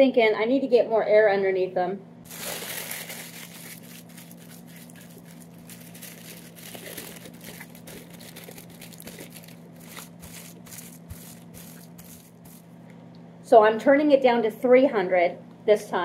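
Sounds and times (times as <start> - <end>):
steady low hum: 0.0 - 16.0
paper crinkling and rustling: 2.3 - 12.6.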